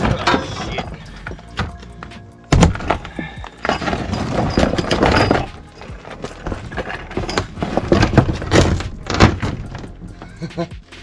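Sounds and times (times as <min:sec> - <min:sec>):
knocks and thuds of kayak gear: 0:02.5 - 0:05.4, 0:07.2 - 0:10.1.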